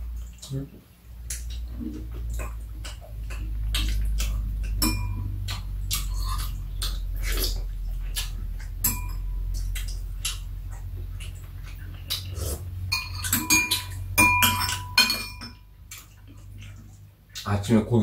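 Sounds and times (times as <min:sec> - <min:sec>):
low hum: 0:00.0 - 0:18.0
spoons and chopsticks clinking on bowls: 0:04.6 - 0:05.3, 0:08.8 - 0:09.3, 0:12.9 - 0:15.6.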